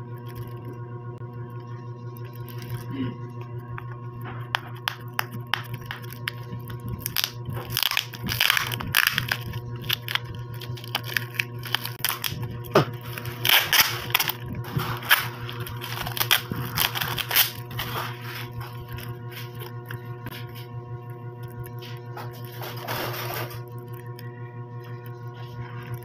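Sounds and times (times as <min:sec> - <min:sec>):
cellophane crinkling and tearing: 0:02.2 - 0:02.9, 0:04.7 - 0:20.4.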